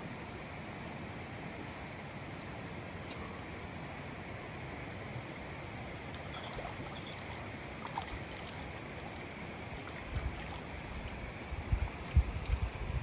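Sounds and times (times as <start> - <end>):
running water rushing: 0.4 - 13.0
faint high chirps: 6.0 - 8.1.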